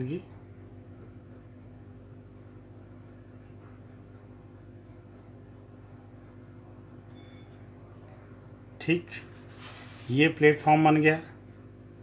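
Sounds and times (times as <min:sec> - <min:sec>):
low electrical hum: 0:00.0 - 0:12.0
pencil scratching on paper: 0:00.8 - 0:07.1.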